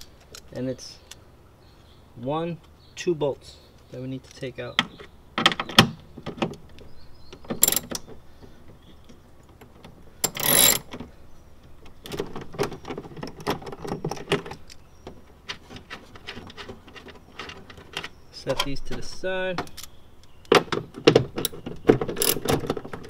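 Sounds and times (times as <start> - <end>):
ratchet rattles: 7.6 - 8.0, 10.2 - 10.9, 21.4 - 22.6
socket ratchet clicking: 7.6 - 8.0, 10.2 - 10.9, 22.2 - 22.5.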